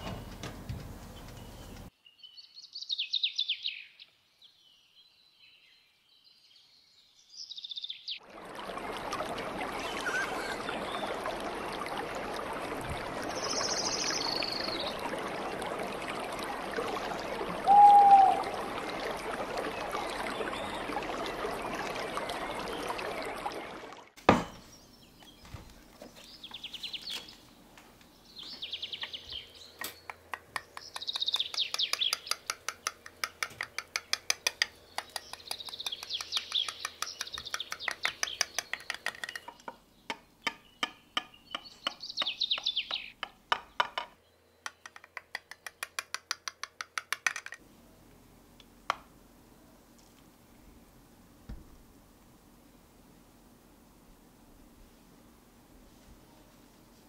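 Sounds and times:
running water: 0:08.2 - 0:24.6, 0:28.6 - 0:47.6.

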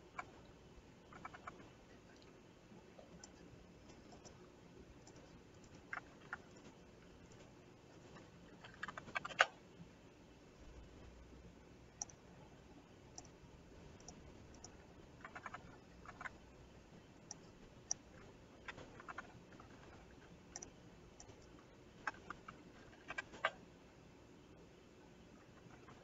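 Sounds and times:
mouse clicks: 0:12.0 - 0:12.2, 0:13.1 - 0:13.4, 0:14.0 - 0:16.4, 0:20.5 - 0:23.6.

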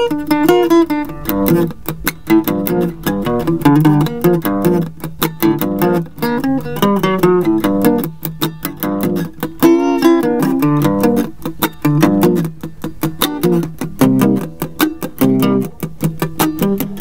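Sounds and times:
acoustic guitar blues: 0:00.0 - 0:17.0.

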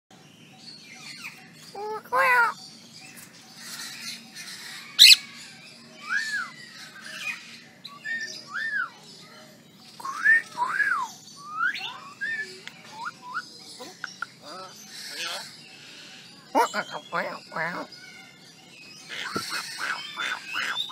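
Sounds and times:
bird whistled notes: 0:06.0 - 0:06.7, 0:07.9 - 0:09.0, 0:10.0 - 0:13.6.

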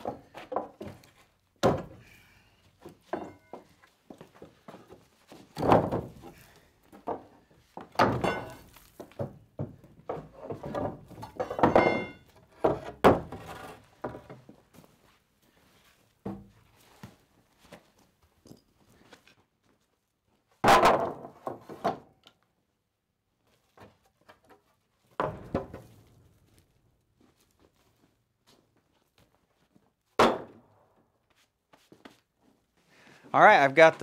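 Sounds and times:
wooden planks knocking and clattering: 0:00.0 - 0:02.1, 0:02.8 - 0:14.6, 0:20.6 - 0:22.2, 0:23.7 - 0:26.6
boards set down clatter: 0:02.8 - 0:03.8, 0:04.7 - 0:14.5, 0:20.6 - 0:22.1, 0:25.2 - 0:26.1.

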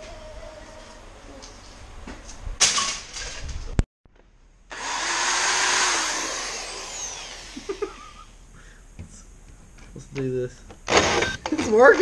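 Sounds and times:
power tool cutting metal: 0:04.7 - 0:08.0.

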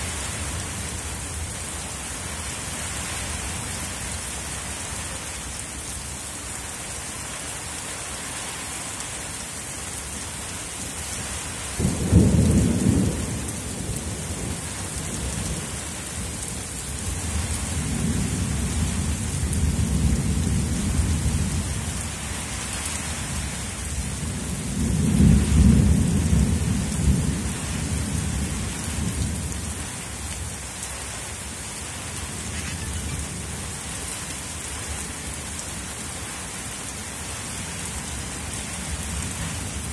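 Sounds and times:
steady rain falling: 0:00.0 - 0:39.9
thunder rumbling: 0:11.8 - 0:15.8, 0:23.9 - 0:29.8.

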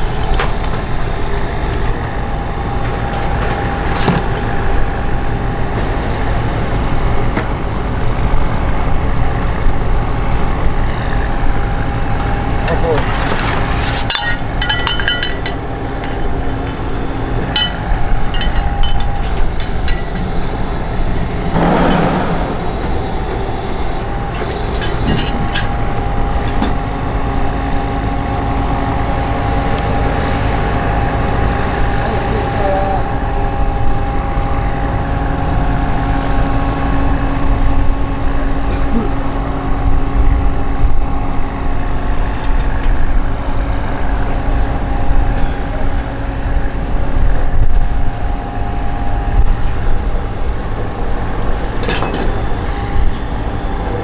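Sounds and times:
engine running low rumble: 0:00.0 - 0:54.0
light metallic clinks: 0:14.1 - 0:16.3
brief rushing noise: 0:21.6 - 0:24.2.

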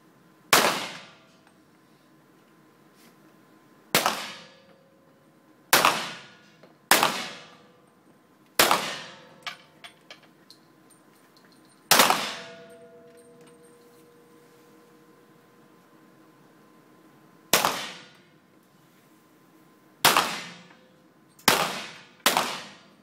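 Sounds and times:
pistol shots echoing: 0:00.5 - 0:01.2, 0:04.0 - 0:04.5, 0:05.7 - 0:07.6, 0:08.6 - 0:09.4, 0:11.9 - 0:12.8, 0:17.5 - 0:18.2, 0:20.0 - 0:20.7, 0:21.4 - 0:22.9.

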